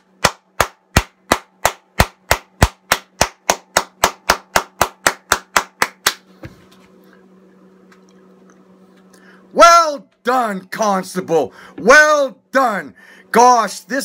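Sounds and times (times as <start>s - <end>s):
person clapping hands: 0.2s - 6.3s.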